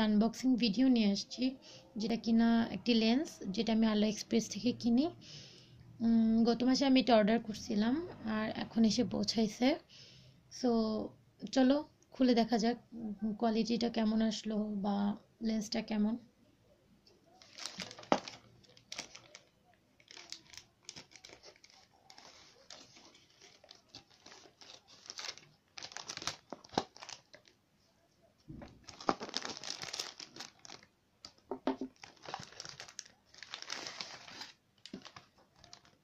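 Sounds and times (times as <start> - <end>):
plastic mailer bag crinkling: 17.3 - 27.6, 28.6 - 36.0.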